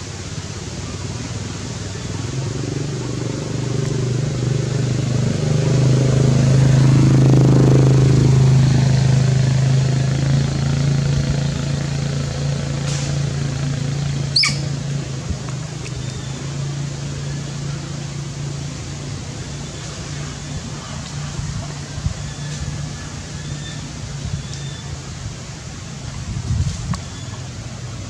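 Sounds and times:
engine humming: 0.0s - 28.0s.

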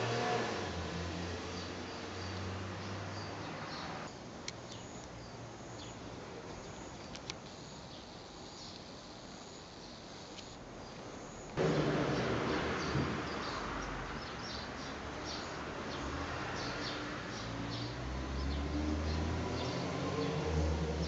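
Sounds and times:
loud rushing noise: 11.6s - 13.8s.

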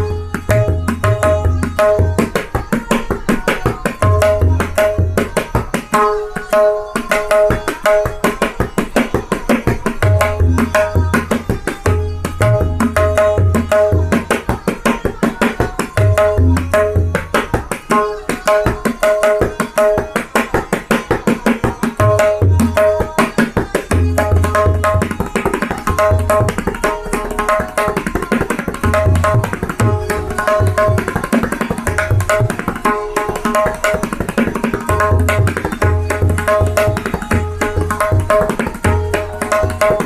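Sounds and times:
sharp ringing tabla strokes: 0.0s - 40.0s.

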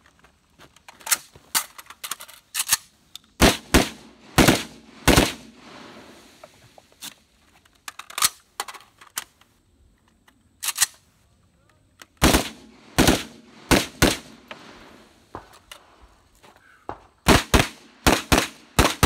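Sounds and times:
loud rifle shots: 3.4s - 6.2s, 12.2s - 15.1s, 17.2s - 19.0s.

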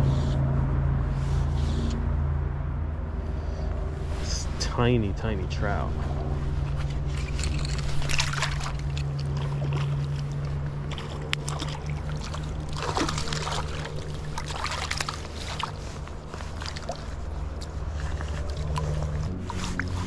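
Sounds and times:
fast river running: 7.0s - 20.0s
water splashing at edge: 7.7s - 20.0s.

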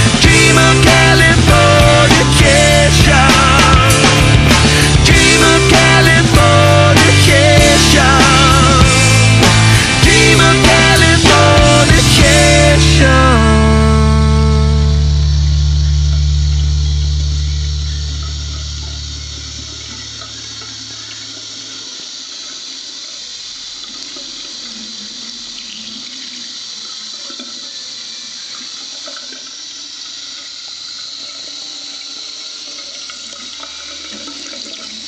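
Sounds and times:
tap water running into basin: 18.1s - 35.0s.

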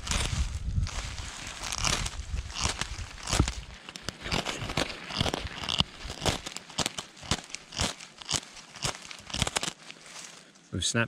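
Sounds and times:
metal striker scraping ferro rod: 1.6s - 9.7s.

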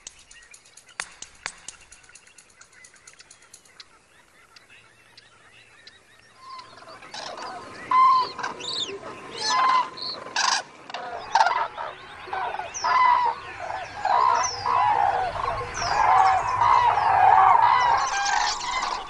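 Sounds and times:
cranes trumpeting: 6.4s - 19.0s.

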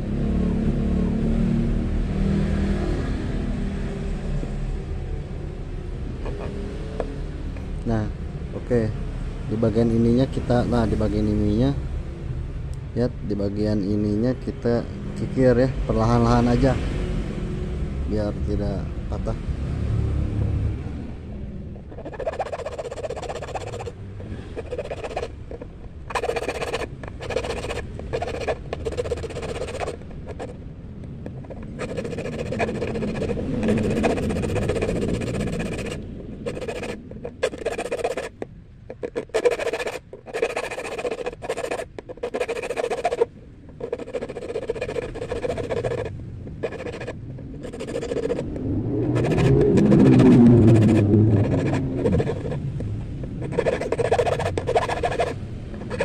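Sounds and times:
file rasping on steel hook: 21.9s - 30.6s, 31.2s - 48.5s, 49.1s - 52.6s, 53.3s - 56.0s
low rumble: 46.1s - 53.6s.

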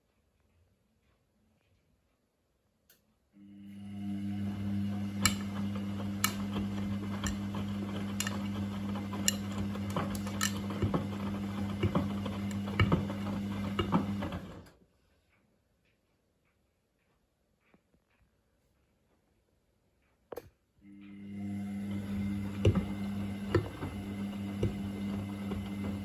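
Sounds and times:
washing machine motor humming: 3.4s - 14.8s, 20.8s - 26.0s.

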